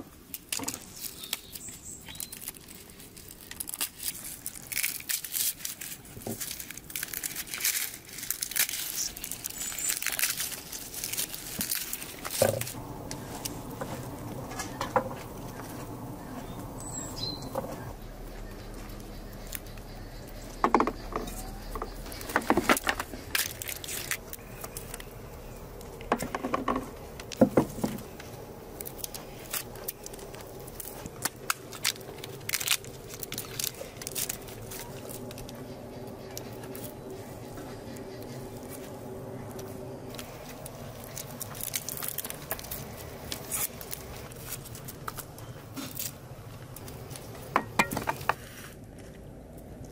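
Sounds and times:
garlic skins crackling: 0.0 - 49.9
pod shells cracking: 0.3 - 13.1, 20.6 - 35.6.

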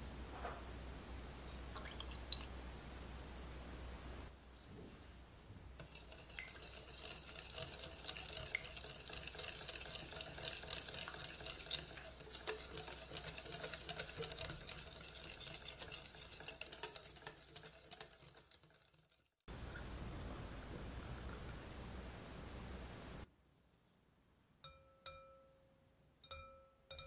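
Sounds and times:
wire whisk clicking against glass bowl: 5.8 - 19.1.

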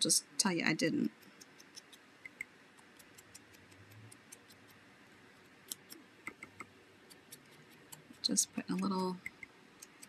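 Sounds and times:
sponge dauber tapping paper: 5.7 - 10.0.

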